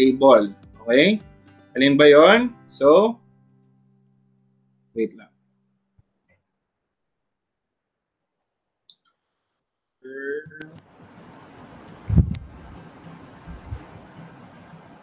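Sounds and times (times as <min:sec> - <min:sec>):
faint room hiss: 0:09.2 - 0:15.0
computer mouse clicks: 0:10.6 - 0:10.8.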